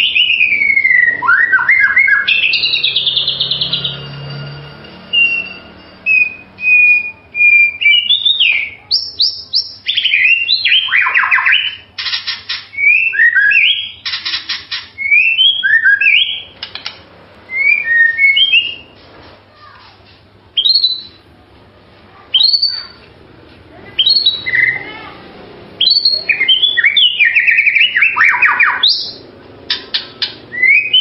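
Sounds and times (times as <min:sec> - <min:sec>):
songbird whistling: 0:00.0 - 0:04.4, 0:05.1 - 0:11.9, 0:12.5 - 0:19.0, 0:20.6 - 0:21.2, 0:22.3 - 0:23.0, 0:23.9 - 0:25.0, 0:25.8 - 0:31.0
harsh rattling bird notes: 0:00.0 - 0:21.2, 0:23.8 - 0:31.0.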